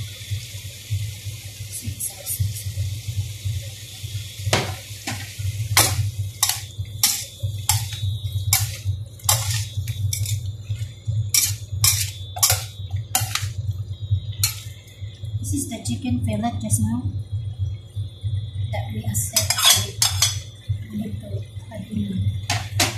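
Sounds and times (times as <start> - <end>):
steady low hum: 0.0 - 22.9
metal spatula scraping wok: 5.8 - 13.5, 14.4 - 14.7, 19.4 - 20.4.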